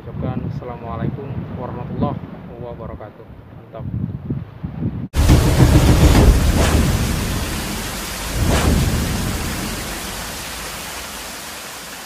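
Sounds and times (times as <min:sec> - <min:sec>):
low thunder rumbling: 0:05.2 - 0:11.3
rain-like hiss: 0:05.2 - 0:12.0.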